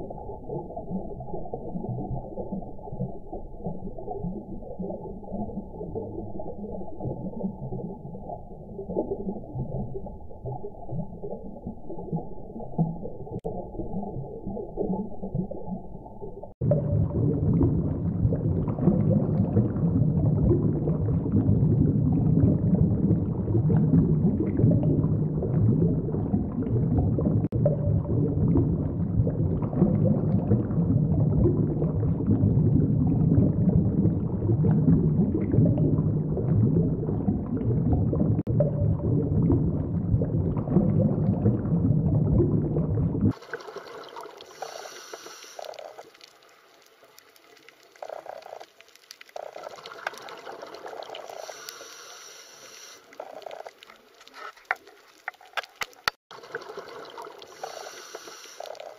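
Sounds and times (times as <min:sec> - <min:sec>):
underwater rumble of moving water: 0:00.0 - 0:58.9
water bubbling and gurgling: 0:00.0 - 0:58.9
faint steady tones: 0:51.3 - 0:53.2, 0:56.4 - 0:58.9.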